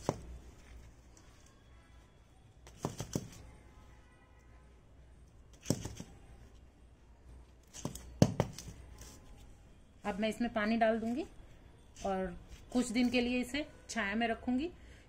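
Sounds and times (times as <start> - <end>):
hands tapping and rustling soil: 2.6 - 3.4, 7.6 - 9.2.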